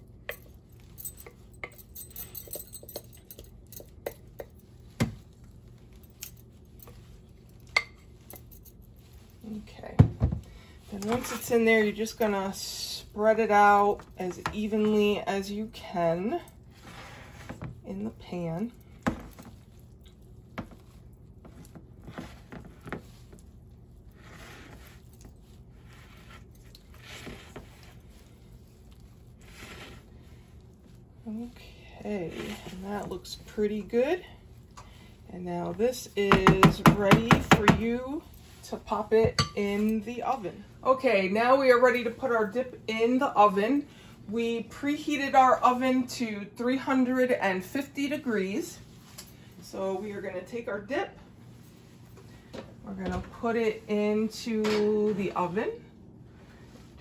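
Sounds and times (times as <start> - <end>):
light clinks: 0.2 - 4.7
spatula scraping glass bowl: 24.1 - 30.3.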